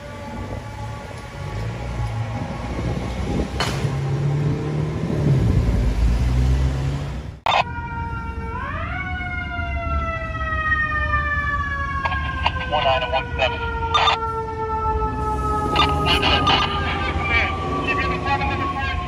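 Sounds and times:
siren wailing: 0:07.5 - 0:19.0
siren winding down: 0:07.5 - 0:19.0
diesel engine rumbling: 0:11.8 - 0:19.0.

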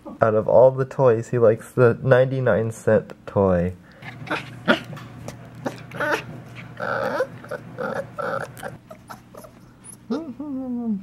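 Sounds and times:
puppy growling: 0:04.0 - 0:10.8.

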